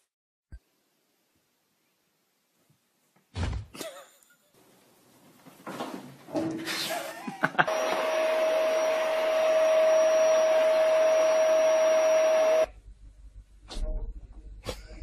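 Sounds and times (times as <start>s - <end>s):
small electric motor whirring: 7.7s - 12.7s.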